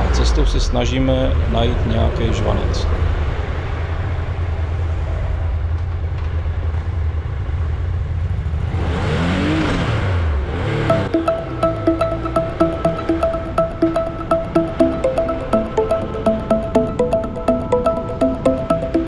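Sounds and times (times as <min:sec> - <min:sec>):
motorcycle engine and road rumble: 0:03.0 - 0:11.0
electronic music with steady beat: 0:10.9 - 0:19.0.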